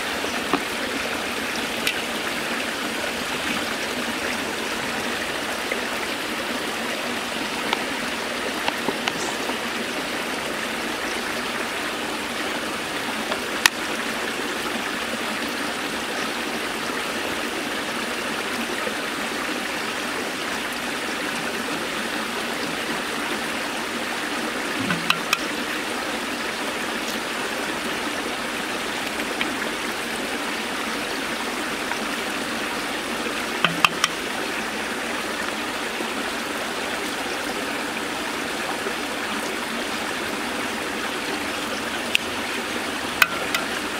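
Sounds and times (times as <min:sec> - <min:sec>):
water pouring into canal: 0:00.0 - 0:43.9
sharp clicks and taps: 0:24.8 - 0:25.5, 0:33.6 - 0:34.2.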